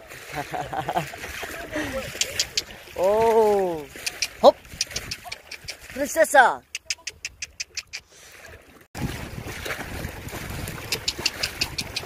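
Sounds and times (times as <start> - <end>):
wind rushing over microphone: 9.0 - 12.0.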